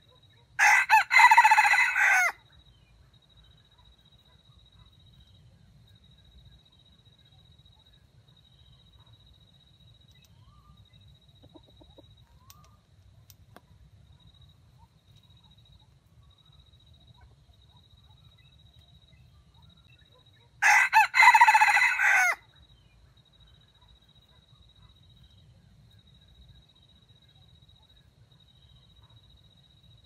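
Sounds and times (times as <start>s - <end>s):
rooster crowing: 0.6s - 2.4s, 20.6s - 22.4s.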